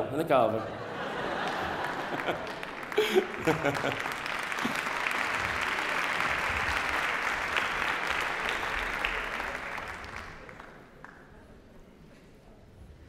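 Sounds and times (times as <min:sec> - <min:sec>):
audience applauding: 0:01.0 - 0:11.4.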